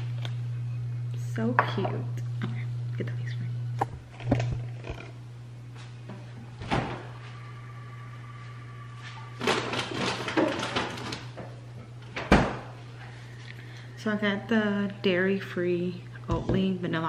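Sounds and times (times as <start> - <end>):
fridge low hum: 0.0 - 17.0
packages rustling and clattering: 9.4 - 11.5.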